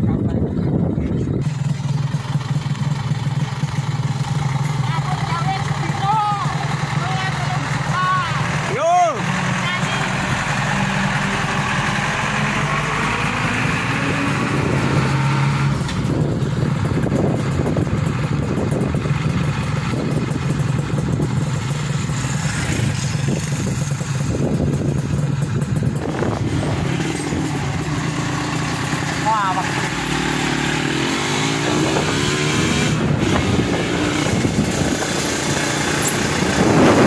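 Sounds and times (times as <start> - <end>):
diesel truck engine running: 0.0 - 37.0.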